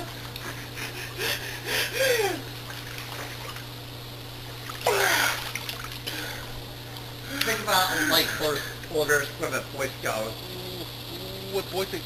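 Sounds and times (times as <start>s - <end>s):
pool water splashing: 2.4s - 7.0s.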